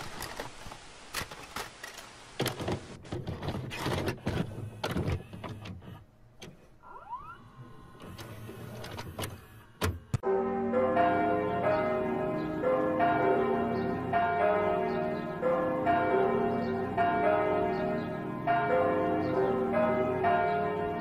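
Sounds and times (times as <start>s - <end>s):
tape hiss: 0.0s - 3.0s.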